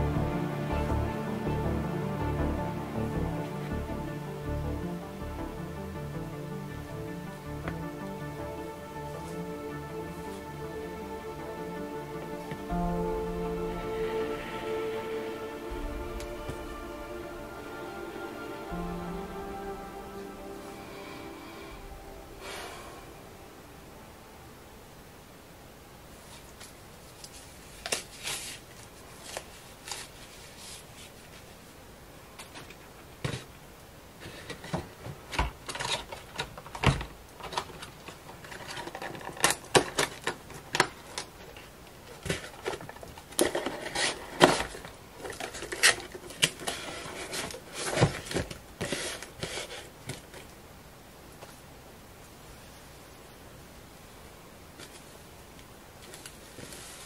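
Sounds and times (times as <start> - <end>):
rustling scrapes: 26.1 - 31.8, 41.5 - 50.5, 56.0 - 57.0.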